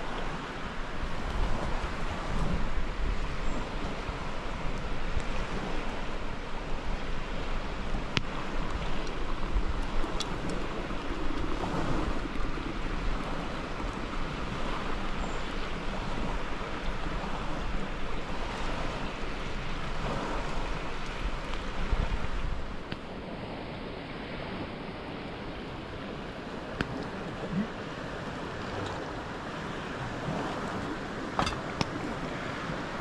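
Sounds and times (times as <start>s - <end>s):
river rushing: 0.0s - 33.0s.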